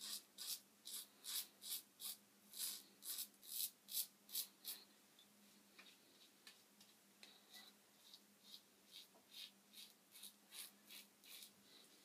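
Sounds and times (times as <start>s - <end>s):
razor scraping over stubble: 8.0s - 11.5s.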